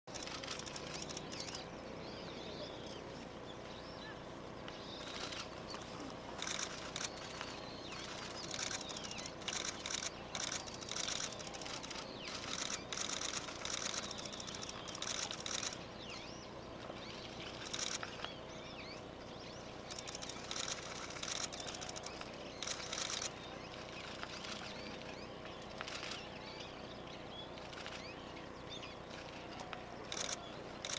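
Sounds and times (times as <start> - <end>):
faint steady hum: 0.1 - 30.9
small birds chirping and twittering: 0.1 - 30.9.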